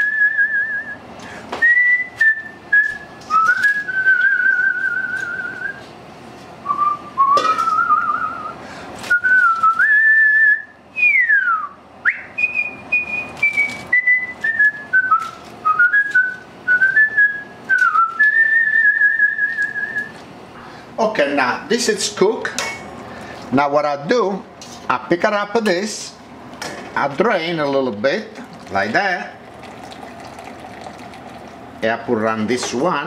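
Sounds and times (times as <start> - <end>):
man whistling a slow tune: 0.0 - 1.0, 1.6 - 5.8, 6.6 - 20.2.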